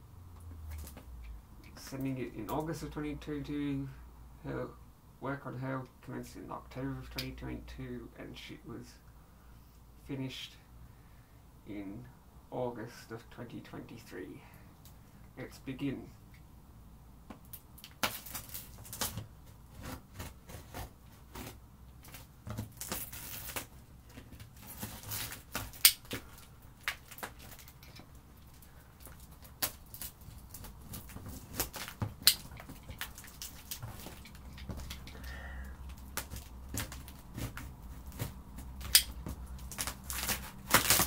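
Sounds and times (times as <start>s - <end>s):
box cutter slicing tape: 24.6s - 26.3s, 36.0s - 41.0s.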